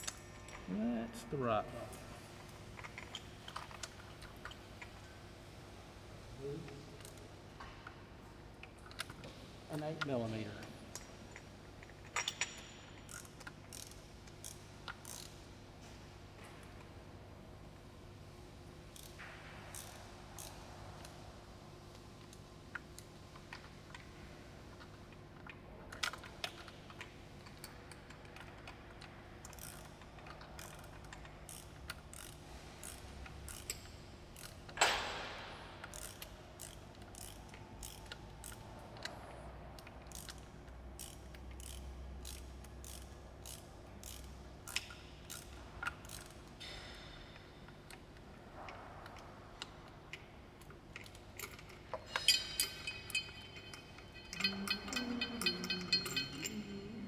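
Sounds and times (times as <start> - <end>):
ratchet wrench clicking: 11.0 - 15.4, 19.0 - 21.1, 29.4 - 35.0, 35.8 - 39.2, 39.8 - 46.6, 51.0 - 56.7.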